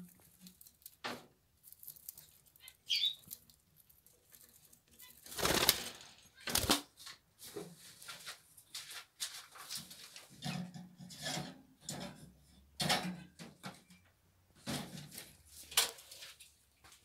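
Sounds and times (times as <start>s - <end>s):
birds pecking seeds: 0.0s - 6.9s
seeds cracking clicks: 1.6s - 5.3s
bird chirp: 2.6s - 3.5s
wings flapping: 5.2s - 6.9s.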